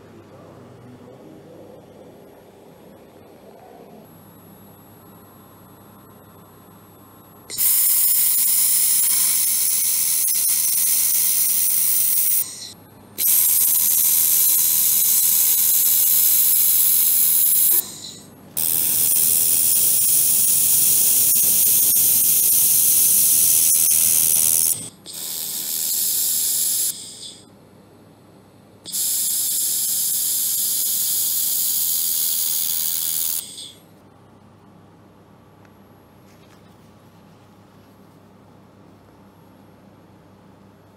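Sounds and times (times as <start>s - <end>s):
laser welding torch hissing: 7.5s - 27.5s, 28.9s - 33.8s.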